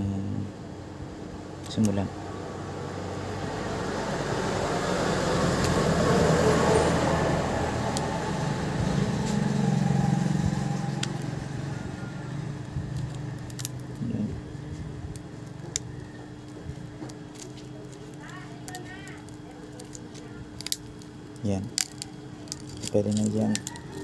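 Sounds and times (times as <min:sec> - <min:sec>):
low rumble: 0:02.6 - 0:15.3.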